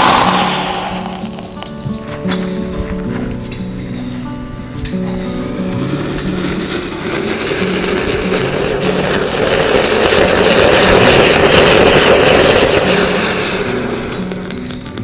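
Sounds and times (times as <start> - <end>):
firework fountain hissing: 0.0 - 2.0, 6.1 - 15.0
background music: 0.0 - 15.0.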